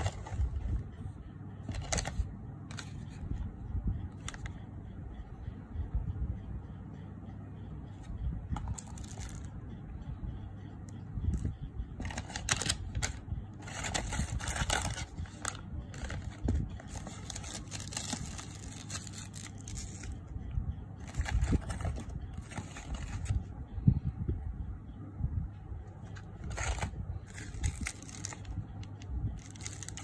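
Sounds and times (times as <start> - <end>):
plastic and foil crinkling: 12.0 - 20.2, 21.0 - 23.4, 26.4 - 30.0.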